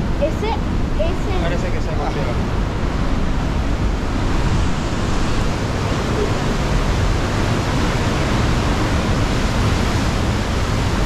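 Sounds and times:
ocean surf breaking: 0:00.0 - 0:11.0.

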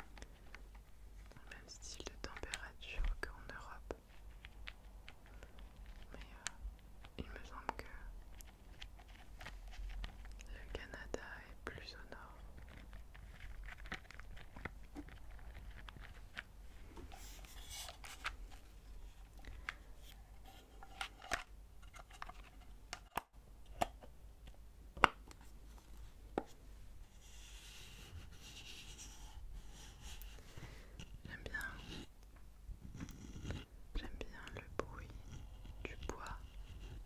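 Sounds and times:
soft rustling: 0:00.0 - 0:22.8.

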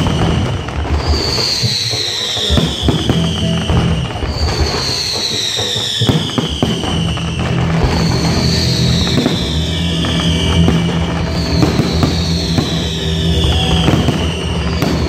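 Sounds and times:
fireworks bursting and crackling: 0:00.0 - 0:15.0.

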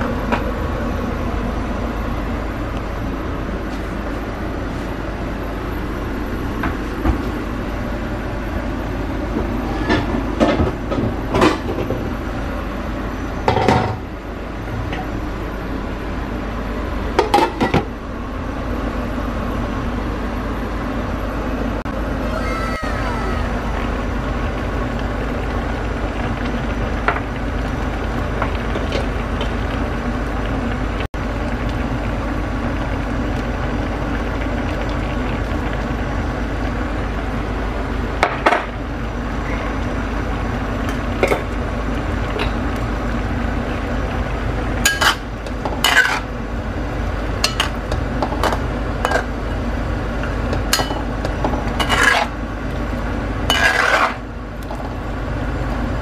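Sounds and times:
low background hum: 0:00.0 - 0:56.0
metal utensil scraping a pan: 0:45.8 - 0:46.2, 0:51.8 - 0:52.3, 0:53.5 - 0:54.2.

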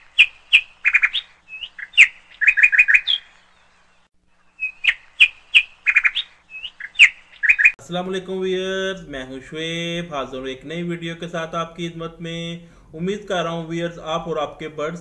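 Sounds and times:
bird chirping: 0:00.0 - 0:07.8.

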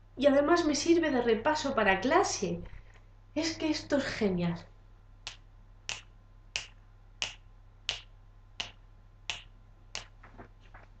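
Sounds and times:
finger snapping: 0:05.2 - 0:10.1.

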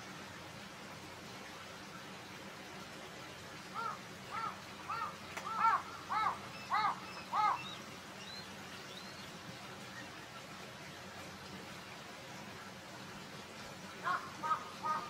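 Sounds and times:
crow cawing: 0:03.8 - 0:07.6, 0:14.0 - 0:15.0.

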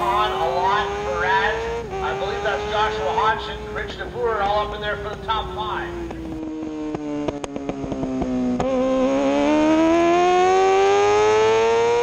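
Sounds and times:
motorcycle engine revving: 0:00.0 - 0:12.0
sharp exhaust pops: 0:00.6 - 0:10.0.

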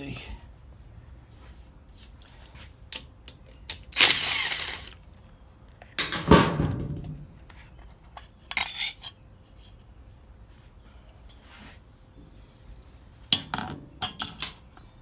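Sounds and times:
cordless driver whirring: 0:03.9 - 0:05.0.

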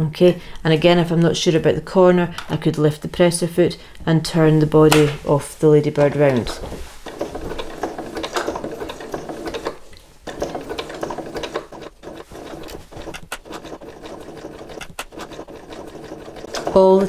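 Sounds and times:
sewing machine needle clattering: 0:06.0 - 0:17.0.

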